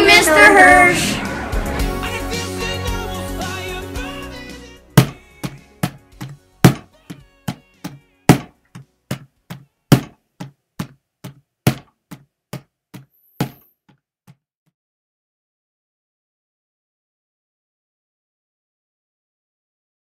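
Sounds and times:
floor drum beat: 0:05.0 - 0:06.9.

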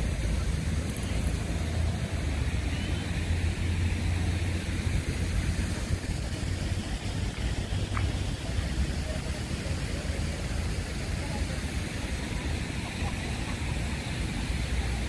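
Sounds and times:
city traffic rumble: 0:00.0 - 0:15.0
street hubbub: 0:00.0 - 0:15.0.

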